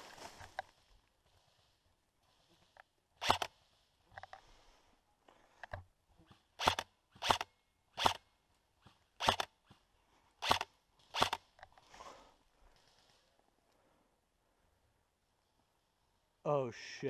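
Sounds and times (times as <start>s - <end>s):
airsoft rifle shots: 6.6s - 8.2s, 9.2s - 9.5s.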